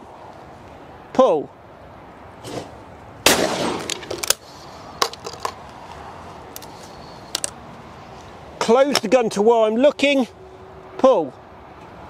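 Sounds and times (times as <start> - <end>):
shotgun shot: 3.2 - 4.1
metallic clicks of shotgun handling: 7.3 - 7.6.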